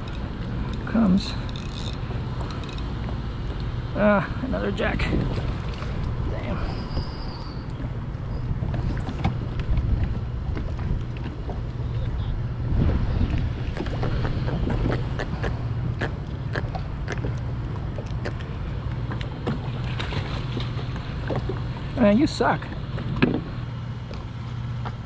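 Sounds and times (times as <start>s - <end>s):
wind buffeting microphone: 4.7s - 20.4s.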